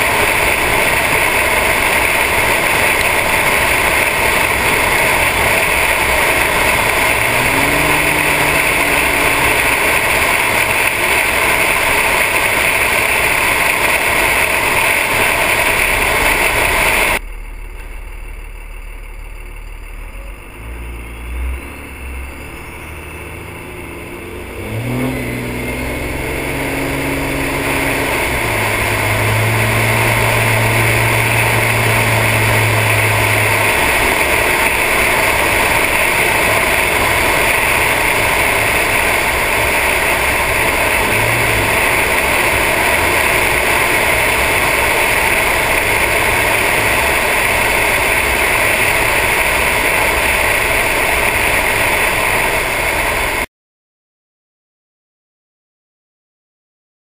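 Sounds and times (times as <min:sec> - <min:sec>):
diesel engine accelerating: 0:00.0 - 0:53.5
wind and road noise: 0:00.0 - 0:53.5.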